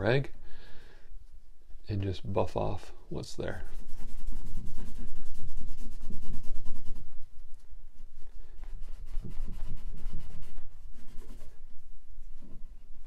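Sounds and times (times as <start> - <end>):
cloth rag rubbing wood: 3.5 - 13.0.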